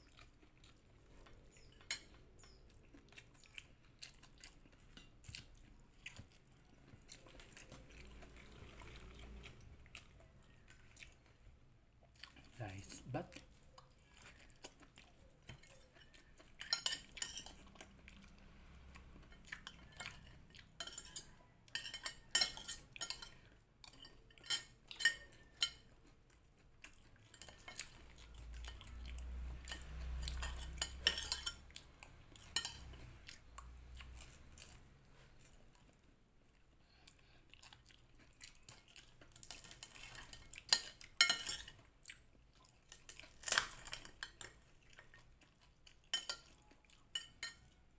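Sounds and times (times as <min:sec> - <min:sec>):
cutlery clinking on a plate: 0:15.5 - 0:17.6, 0:19.3 - 0:25.9, 0:29.6 - 0:31.6, 0:32.4 - 0:33.0, 0:39.5 - 0:41.8, 0:46.1 - 0:46.6, 0:47.2 - 0:47.7.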